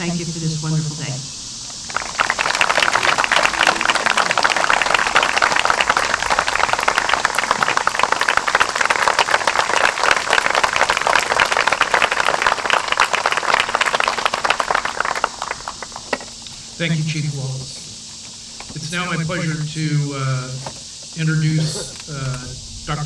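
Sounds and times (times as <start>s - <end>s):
audience applauding: 1.8s - 16.5s.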